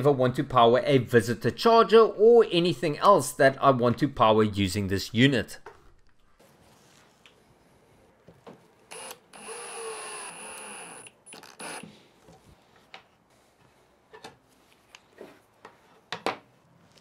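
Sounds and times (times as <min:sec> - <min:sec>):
cordless drill driving a screw: 0:08.9 - 0:11.9.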